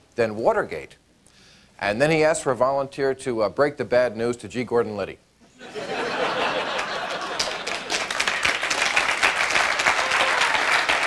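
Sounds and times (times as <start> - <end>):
audience laughing: 5.6 - 8.4
audience applauding: 6.5 - 11.0.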